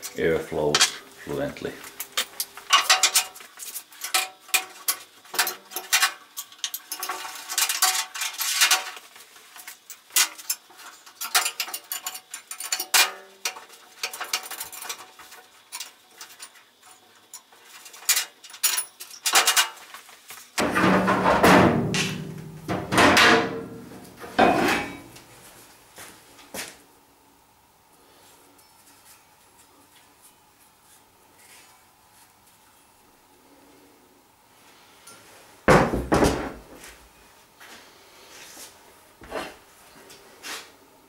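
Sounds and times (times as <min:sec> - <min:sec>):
metal scraping and rattling: 0:02.1 - 0:19.8, 0:20.6 - 0:25.2.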